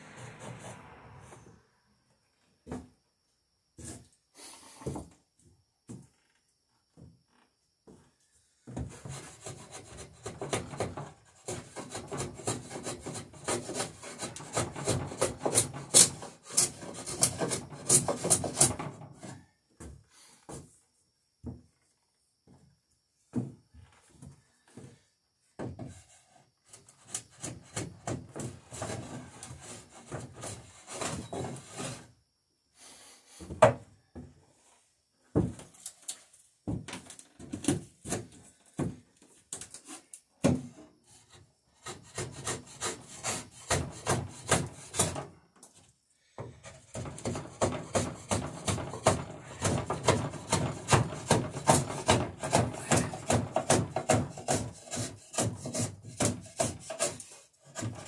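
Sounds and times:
hand tool strokes on wooden plank: 0.0 - 1.6, 8.7 - 19.4, 25.8 - 32.1, 41.0 - 45.3, 46.4 - 58.0.

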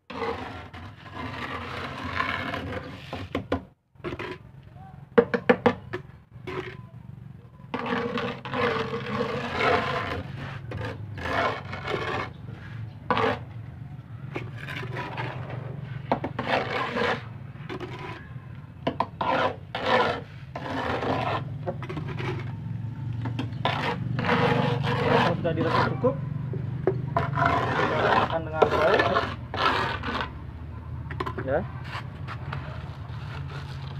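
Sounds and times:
metal scraper rasping grout: 0.1 - 4.4, 6.4 - 6.9, 7.7 - 13.5, 14.3 - 22.6, 23.2 - 26.2, 26.8 - 30.4.

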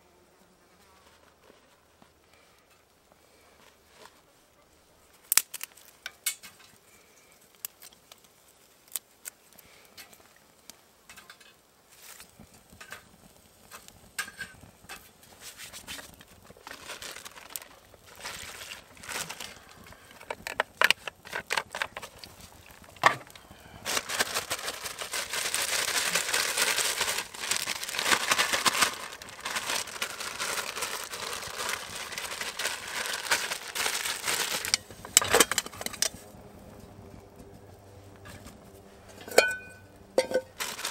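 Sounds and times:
small clicks and snaps: 7.5 - 11.6
plastic zip bag crinkling: 16.0 - 36.1, 40.2 - 40.9.

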